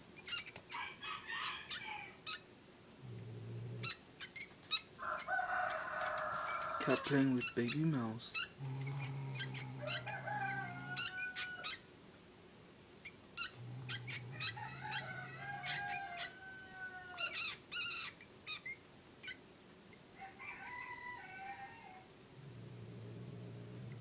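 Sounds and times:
cat growling: 3.0 - 4.0, 8.4 - 11.8, 13.4 - 17.3, 22.4 - 24.0
cat mewing: 8.8 - 11.8.

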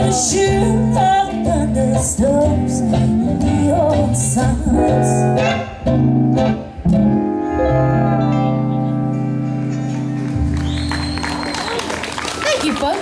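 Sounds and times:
woman singing: 0.0 - 5.5
acoustic country band: 0.0 - 11.6.

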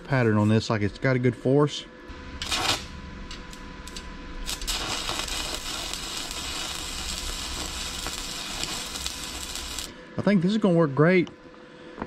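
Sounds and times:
welding arc sizzling: 2.1 - 10.0.

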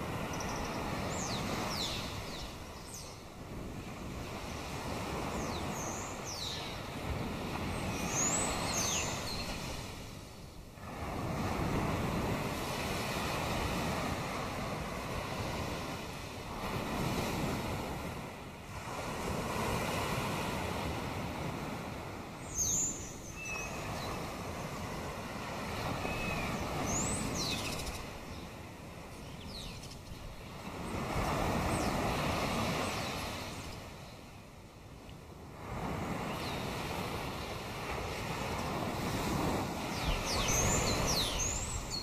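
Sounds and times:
sea waves washing ashore: 0.0 - 42.0
high-pitched bird calls: 22.6 - 24.1, 26.0 - 28.1.

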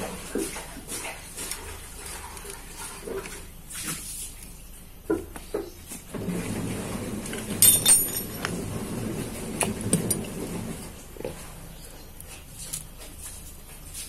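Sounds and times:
sharp metallic clinks: 7.6 - 8.5.

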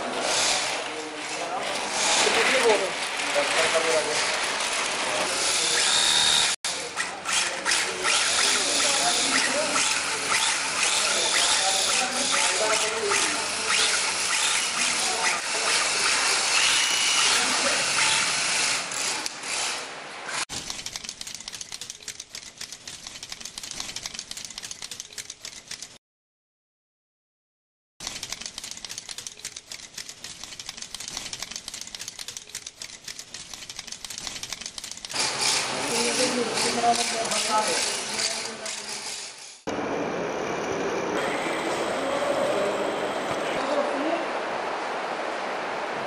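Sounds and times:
tufting gun running: 20.6 - 26.0, 28.0 - 38.9.

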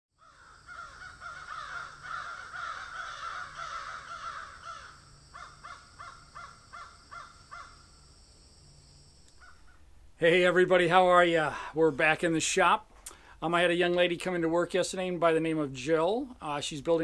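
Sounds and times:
crows cawing: 0.2 - 7.9, 9.3 - 9.9.

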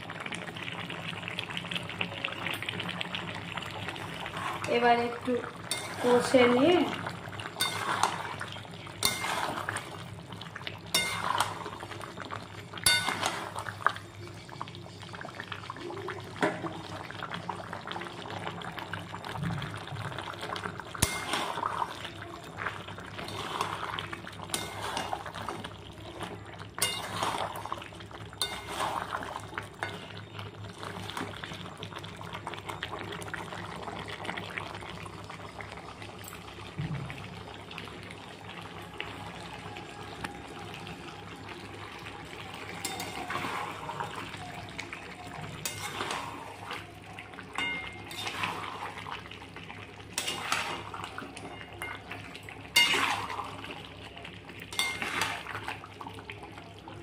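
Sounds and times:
food sizzling in a pan: 0.0 - 57.0
metal spatula scraping a pan: 5.7 - 6.8, 7.6 - 8.4, 9.0 - 10.0, 10.9 - 11.8, 12.8 - 13.6, 21.0 - 21.8, 23.2 - 23.8, 24.4 - 25.6, 26.8 - 27.7, 28.4 - 30.1, 45.6 - 46.7, 47.6 - 49.0, 50.2 - 51.0, 52.8 - 53.3, 54.7 - 55.5.

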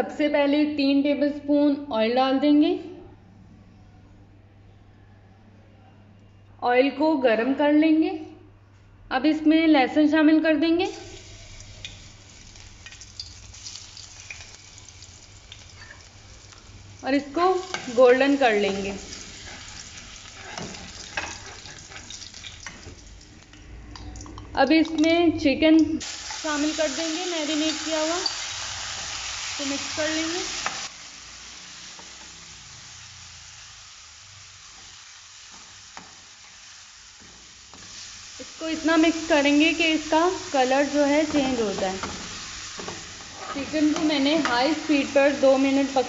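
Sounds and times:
garlic sizzling in hot oil: 10.8 - 23.5, 25.8 - 46.0
small crackles of frying: 10.8 - 25.2, 25.8 - 46.0
metal spoon scraping pan: 18.8 - 22.2, 42.8 - 44.5.

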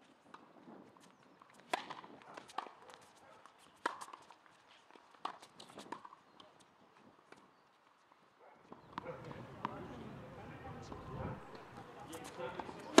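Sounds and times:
tennis ball racket hits: 1.6 - 4.4, 11.5 - 13.0.

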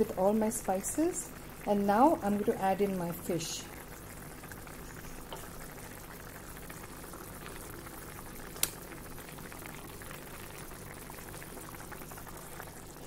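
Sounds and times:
gravy boiling in a wok: 0.0 - 13.0.

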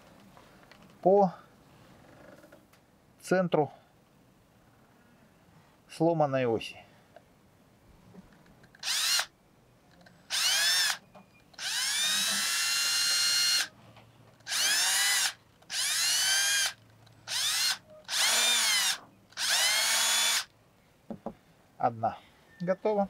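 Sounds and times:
cordless drill whining: 8.8 - 9.3, 10.3 - 11.0, 11.6 - 13.7, 14.4 - 20.5.

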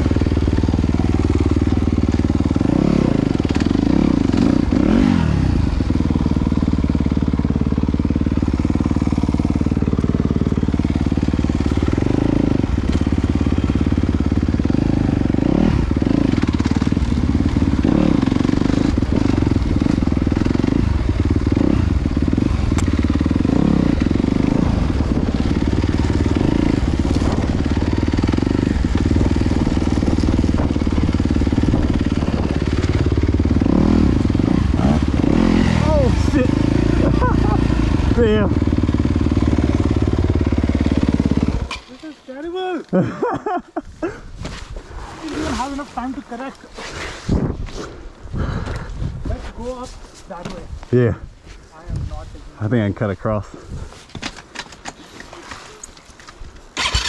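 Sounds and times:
dirt bike engine running: 0.0 - 46.6, 56.7 - 57.0.

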